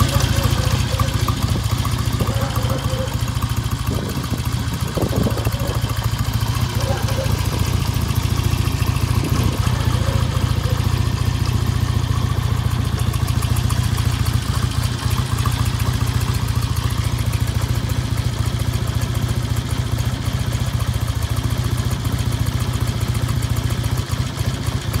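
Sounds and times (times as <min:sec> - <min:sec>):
motorcycle engine idling: 0:00.0 - 0:25.0.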